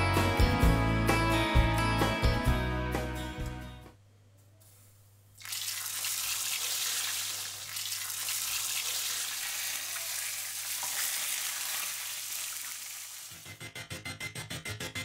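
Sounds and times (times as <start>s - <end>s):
food frying in hot oil: 5.4s - 13.4s.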